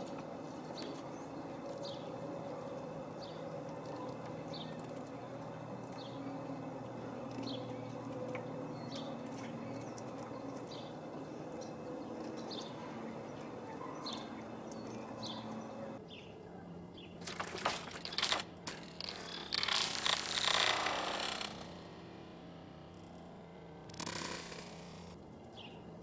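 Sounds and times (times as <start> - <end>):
squirrel clicking and scratching: 0.0 - 16.0
steady low hum: 0.0 - 16.6
bird chirps: 7.3 - 16.0.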